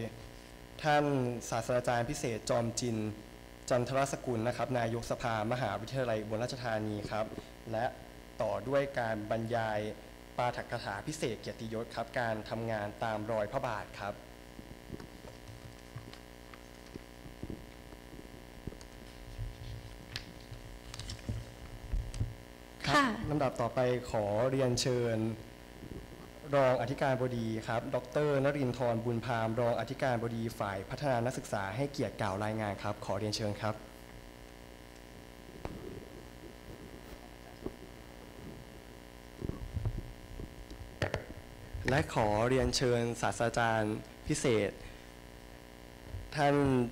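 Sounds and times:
electrical mains hum: 0:00.0 - 0:46.9
microphone handling thumps: 0:14.5 - 0:22.5, 0:25.7 - 0:26.4, 0:35.5 - 0:43.0, 0:46.0 - 0:46.9
faint clicks and knocks: 0:14.6 - 0:22.4.

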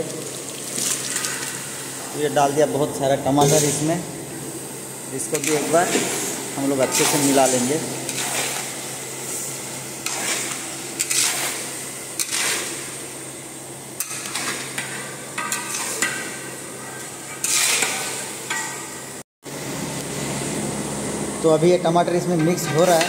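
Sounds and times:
steady low hum: 0:01.5 - 0:14.0
metal spatula scraping a pan: 0:05.3 - 0:08.8, 0:10.0 - 0:12.9, 0:17.3 - 0:18.2, 0:22.4 - 0:23.0.

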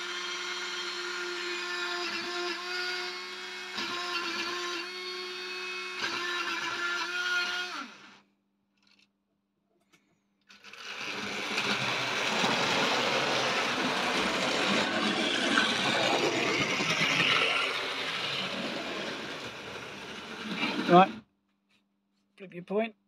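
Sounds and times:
model train whirring on rails: 0:10.5 - 0:21.2.

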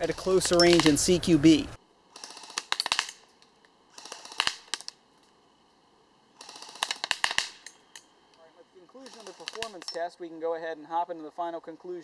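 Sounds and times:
airsoft gun firing bursts: 0:02.1 - 0:03.2, 0:03.9 - 0:05.0, 0:06.4 - 0:07.7, 0:09.0 - 0:09.9.

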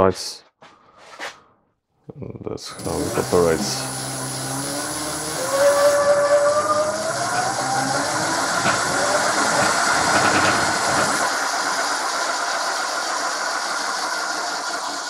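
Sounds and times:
electric motor whine: 0:02.7 - 0:11.3
spinning wheel rushing: 0:02.8 - 0:15.0.

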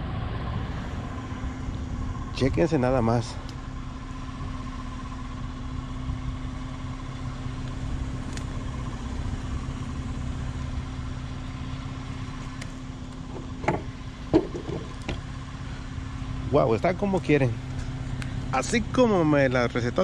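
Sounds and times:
vehicle engine idling: 0:00.0 - 0:20.0
short knocks: 0:13.3 - 0:15.2.

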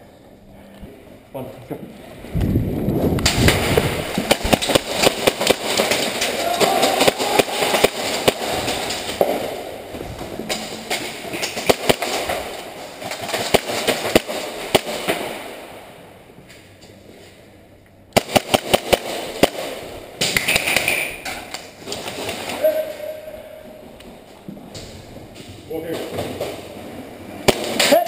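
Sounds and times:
airsoft guns firing: 0:03.2 - 0:09.8, 0:10.5 - 0:15.7, 0:18.1 - 0:21.2, 0:27.4 - 0:28.0.

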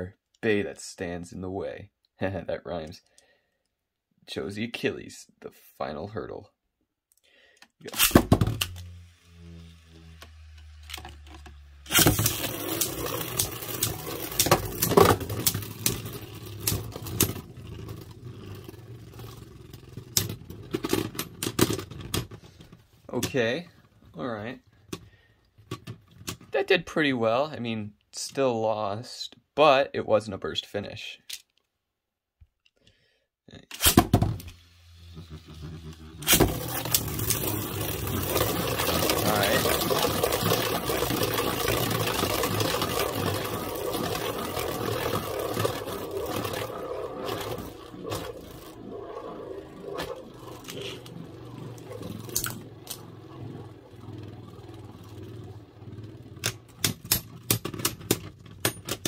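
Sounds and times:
spinning top humming: 0:08.1 - 0:22.2, 0:33.8 - 0:58.5
spinning tops clattering together: 0:11.9 - 0:17.4, 0:33.8 - 0:48.7, 0:49.8 - 0:54.2.

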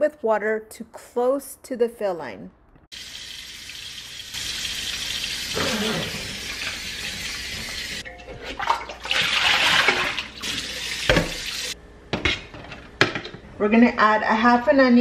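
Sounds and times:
faucet running into a pot: 0:02.9 - 0:08.0, 0:08.9 - 0:11.8
water pouring into a sink: 0:03.0 - 0:08.0, 0:08.6 - 0:11.8.

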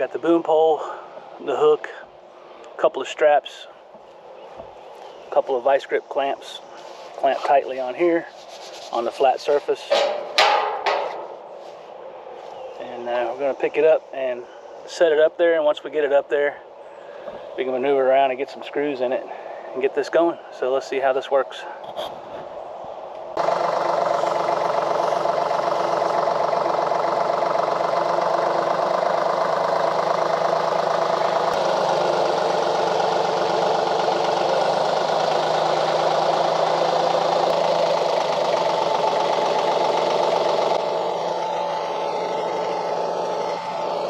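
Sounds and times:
tractor engine running: 0:09.0 - 0:13.7, 0:23.4 - 0:44.0.

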